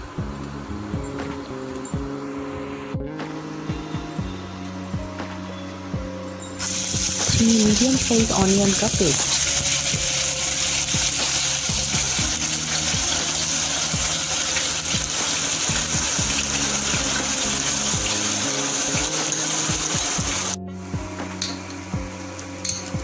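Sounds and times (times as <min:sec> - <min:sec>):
onion paste sizzling in oil: 0:06.6 - 0:20.6.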